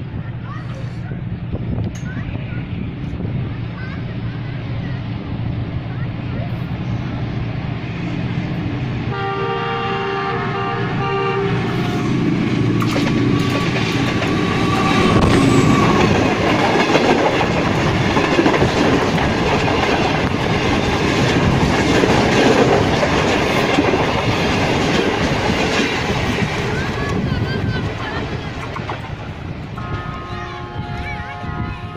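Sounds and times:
train coaches rumbling: 0.0 - 31.9
locomotive horn: 9.1 - 12.2, 29.8 - 31.9
wheels clacking over rail joints: 12.1 - 30.1.

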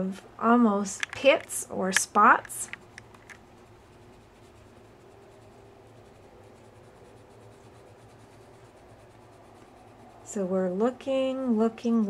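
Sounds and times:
low steady hum: 0.0 - 12.0
pencil scratching on paper: 2.0 - 11.3.

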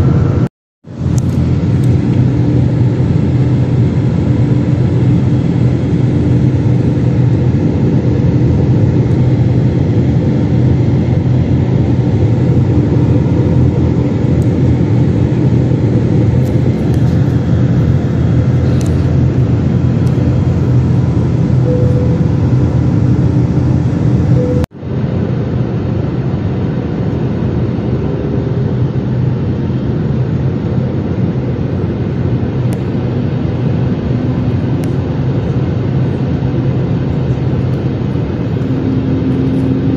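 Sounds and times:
jet engines droning: 0.0 - 39.9
low steady hum: 0.0 - 39.9
rushing air: 5.1 - 39.9.

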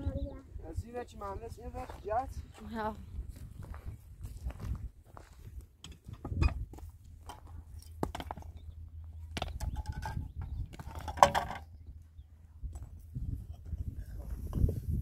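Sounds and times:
rocks knocking: 5.8 - 8.6.

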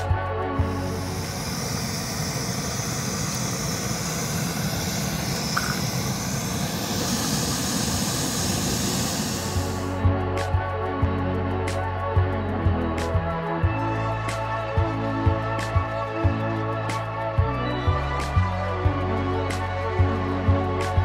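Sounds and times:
gas stove hissing: 0.6 - 10.0.

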